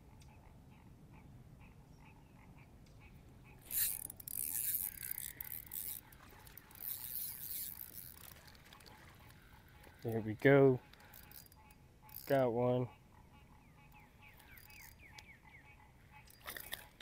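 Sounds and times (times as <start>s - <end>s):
fishing reel clicking rattle: 3.6s - 12.4s, 14.4s - 15.1s.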